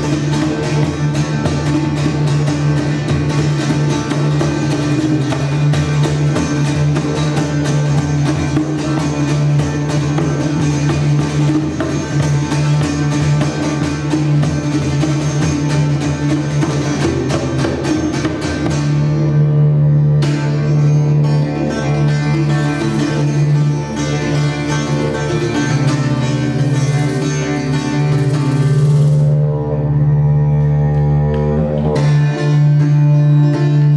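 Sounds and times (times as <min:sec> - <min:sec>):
frame drum strokes: 0:00.0 - 0:19.3
didgeridoo drone: 0:00.0 - 0:33.9.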